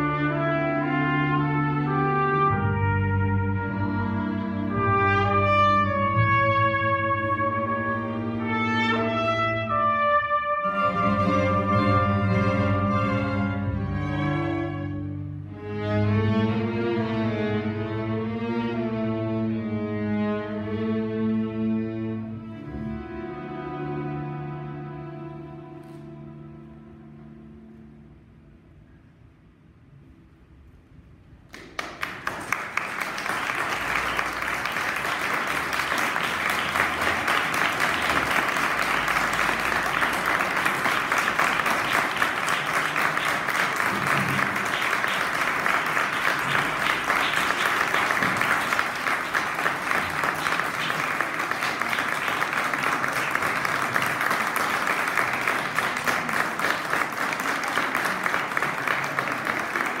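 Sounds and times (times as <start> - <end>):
audience applauding: 31.5 - 60.0.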